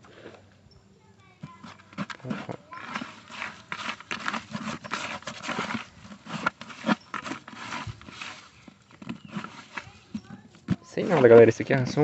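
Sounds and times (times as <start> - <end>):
hand scraping meal in plastic bucket: 1.4 - 12.0.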